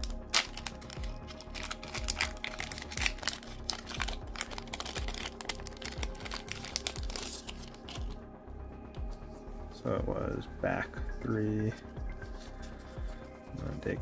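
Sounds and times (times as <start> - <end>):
foil pack crinkling and crackling: 0.0 - 8.2
quiet background music: 0.0 - 14.0.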